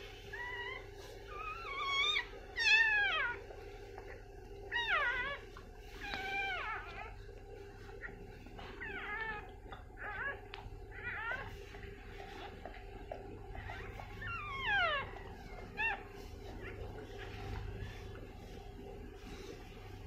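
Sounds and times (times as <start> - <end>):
faint steady hum: 0.0 - 20.0
puppy squealing cries: 0.4 - 3.4, 4.7 - 5.4, 6.0 - 7.1, 8.8 - 11.6, 13.5 - 18.0.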